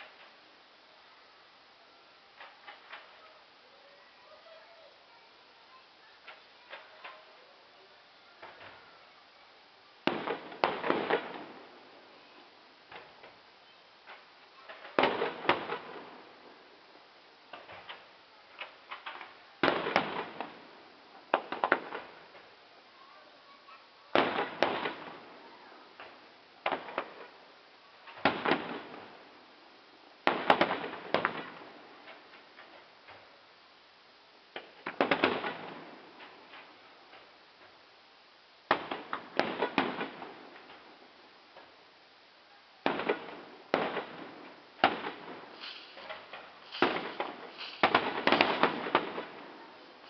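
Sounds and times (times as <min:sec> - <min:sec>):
firework shells bursting: 0:10.0 - 0:11.9, 0:12.8 - 0:16.6, 0:17.4 - 0:22.6, 0:28.0 - 0:29.3, 0:30.2 - 0:33.3, 0:34.5 - 0:37.8, 0:38.6 - 0:41.8, 0:42.8 - 0:50.0.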